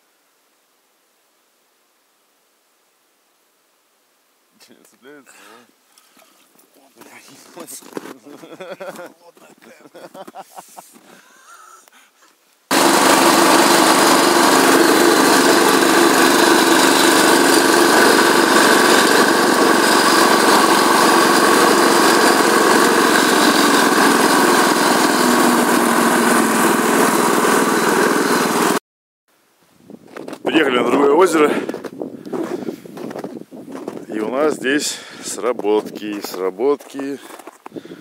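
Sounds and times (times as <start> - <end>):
snowmobile engine running: 12.7 - 28.8.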